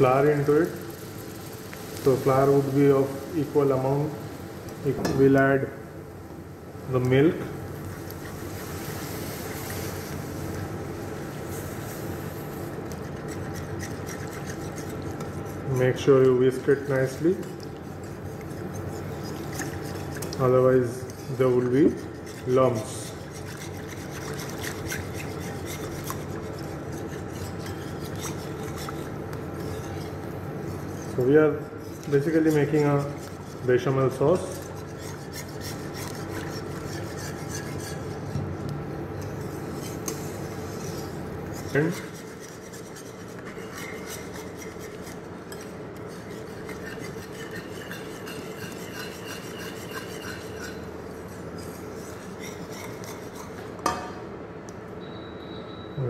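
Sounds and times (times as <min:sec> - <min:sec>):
steady low hum: 0:00.0 - 0:56.0
whisk scraping metal saucepan: 0:12.6 - 0:38.4, 0:39.2 - 0:53.8.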